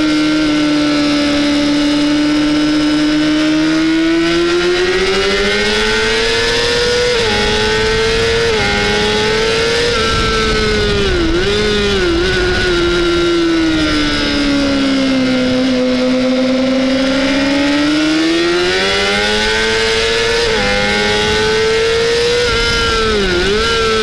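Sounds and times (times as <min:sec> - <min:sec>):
motorcycle engine revving: 0:00.0 - 0:24.0.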